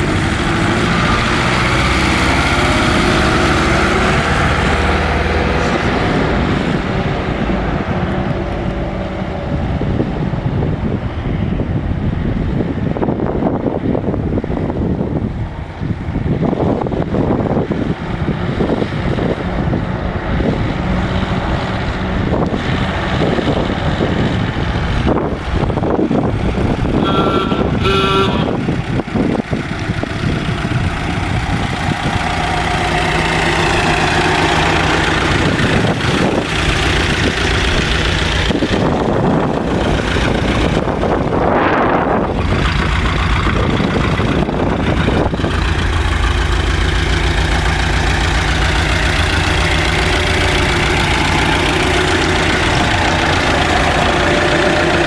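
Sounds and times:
car engine running and idling: 0.0s - 55.0s
short high tones: 27.0s - 28.5s.

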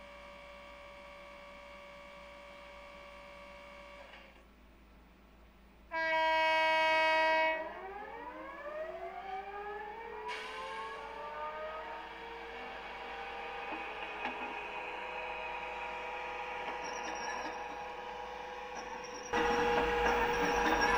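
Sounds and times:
locomotive horn blast: 5.9s - 7.7s, 19.3s - 20.9s
electric traction whine: 10.0s - 20.9s.

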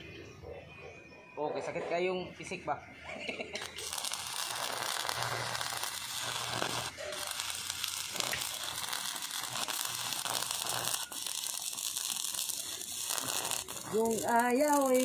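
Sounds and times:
welding arc crackling: 3.6s - 15.0s.

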